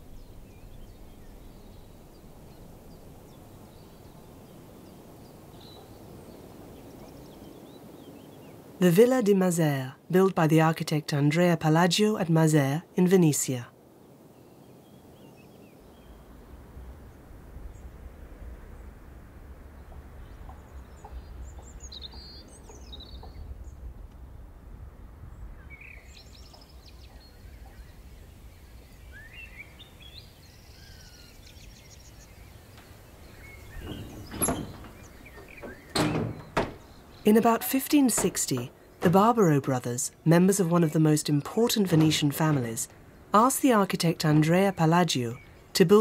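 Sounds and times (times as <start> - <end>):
songbirds chirping: 0.0 - 46.0
wooden shutter knock: 32.8 - 39.6, 41.7 - 42.9.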